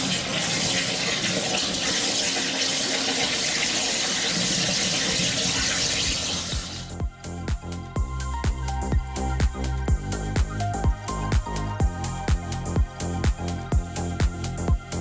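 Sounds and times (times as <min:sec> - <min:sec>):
waterjet hissing: 0:00.0 - 0:06.9
music with thudding beat: 0:06.5 - 0:15.0.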